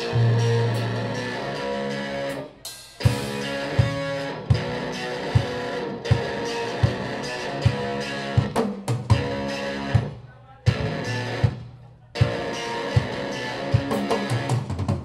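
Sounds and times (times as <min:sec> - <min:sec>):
electric guitar chords: 0:00.0 - 0:15.0
kick drum beat: 0:03.8 - 0:07.1.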